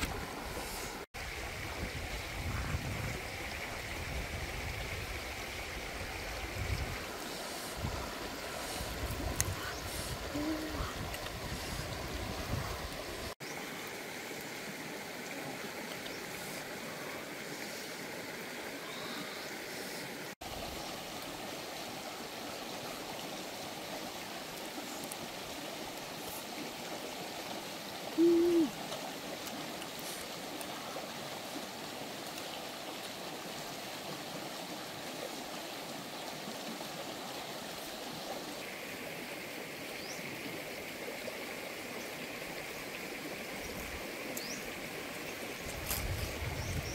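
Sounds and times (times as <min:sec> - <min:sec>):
running water: 0:00.0 - 0:46.9
person humming while chewing: 0:10.3 - 0:11.2, 0:28.2 - 0:28.8.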